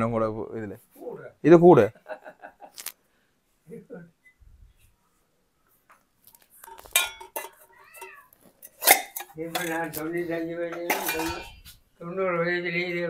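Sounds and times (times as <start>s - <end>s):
brass tumblers clinking: 6.6s - 11.7s.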